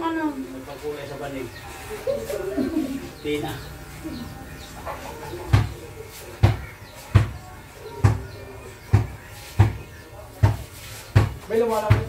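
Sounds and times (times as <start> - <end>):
dull thumps: 8.0 - 12.0.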